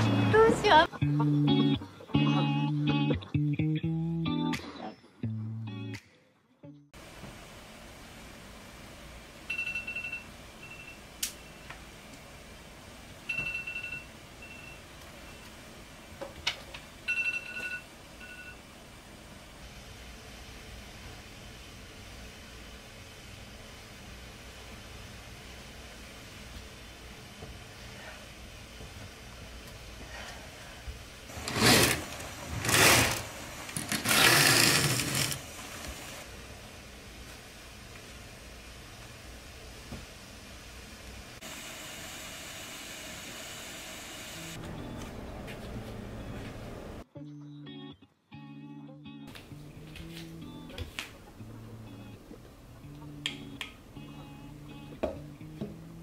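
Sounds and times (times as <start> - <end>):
curtains swishing along rail: 31.3 - 36.2.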